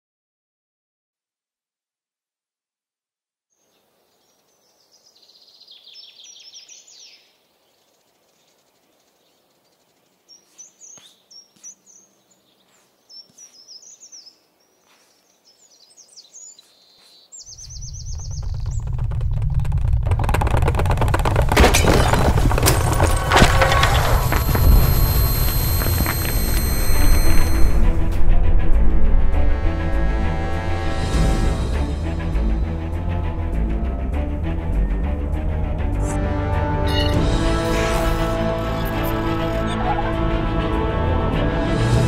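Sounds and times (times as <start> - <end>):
bird chirps: 3.6 - 19.4
deep rumble: 17.6 - 36.6.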